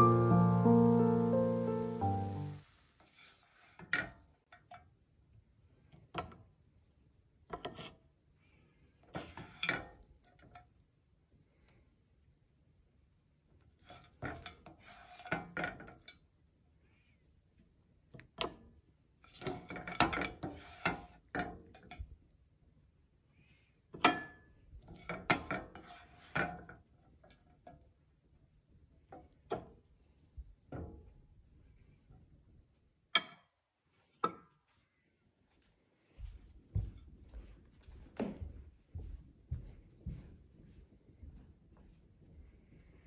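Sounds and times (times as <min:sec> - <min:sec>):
spatula scraping a pan: 0:02.9 - 0:03.9, 0:09.1 - 0:09.8, 0:13.8 - 0:16.1, 0:19.2 - 0:21.9, 0:24.8 - 0:26.8.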